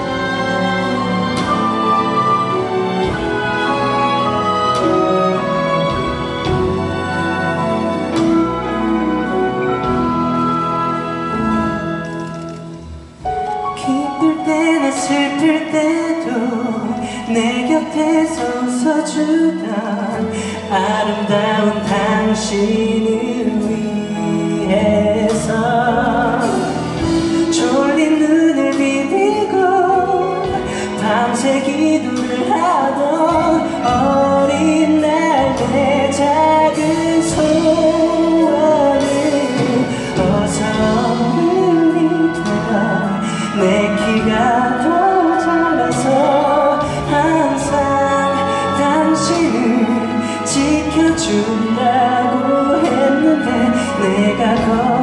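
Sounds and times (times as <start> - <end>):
string orchestra accompaniment: 0.0 - 55.0
man singing into a microphone: 13.8 - 55.0.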